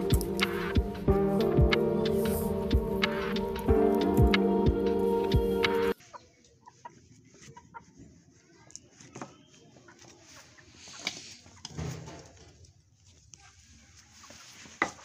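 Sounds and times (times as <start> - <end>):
chickens clucking: 0.0 - 8.2.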